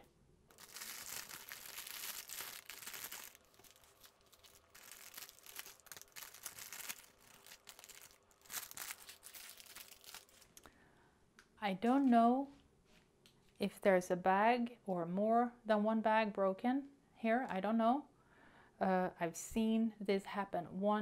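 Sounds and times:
plastic bag crinkling: 0.5 - 10.7.

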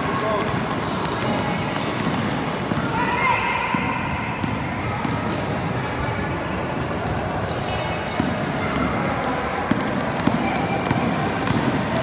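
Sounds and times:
basketball bouncing on gym floor: 0.0 - 5.5, 8.0 - 12.0
spectators' voices: 0.0 - 12.0.

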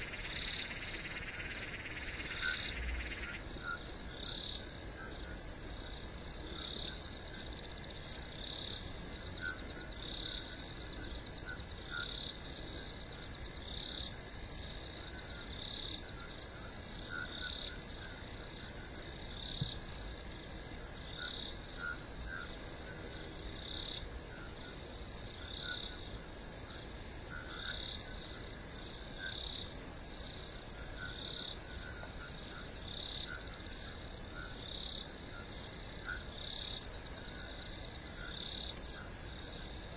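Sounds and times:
louder frog calls: 0.0 - 5.5
frogs and insects trilling: 0.0 - 39.9.

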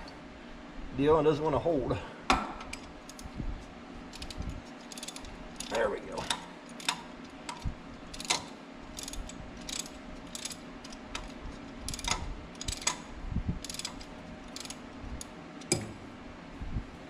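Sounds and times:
hand ratchet clicking: 4.1 - 15.9.

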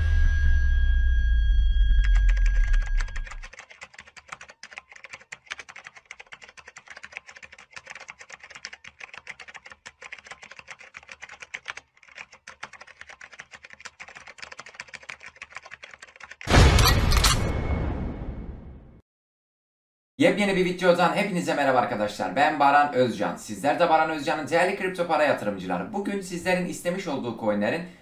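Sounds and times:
keyboard typing clicks: 2.0 - 16.5.

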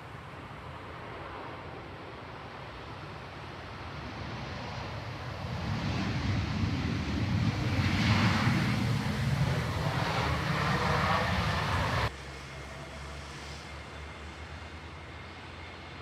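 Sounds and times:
jet engine noise: 0.0 - 16.0
steady low rumble: 5.4 - 12.2.

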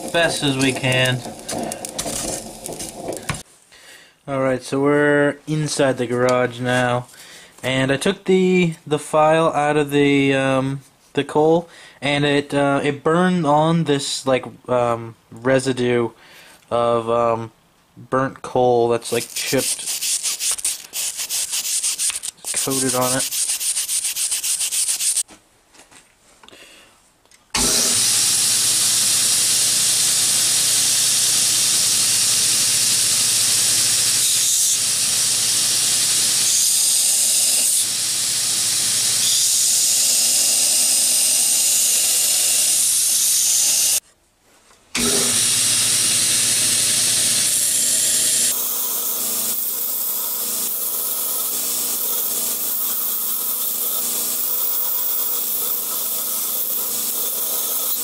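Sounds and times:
belt grinder motor hum: 0.0 - 3.4, 27.6 - 44.0, 45.0 - 58.0
file grinding on a belt: 0.0 - 3.4, 19.2 - 25.2, 32.9 - 44.0, 45.0 - 58.0.

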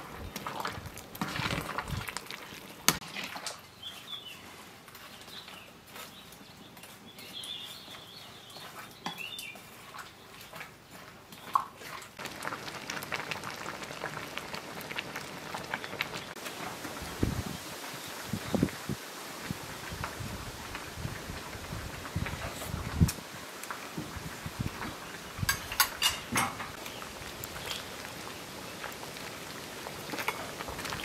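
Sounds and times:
curry simmering crackle: 0.0 - 31.0
metal ladle stirring in pot: 0.1 - 5.3
birds chirping: 3.7 - 9.6
ladle clinking against pot: 25.5 - 26.6.

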